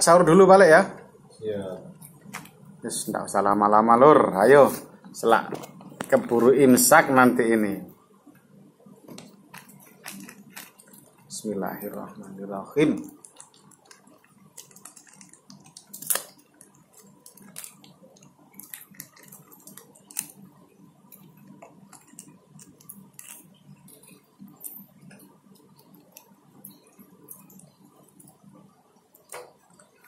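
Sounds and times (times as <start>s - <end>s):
plastic wrapper crinkling: 9.2s - 11.4s, 13.0s - 24.9s.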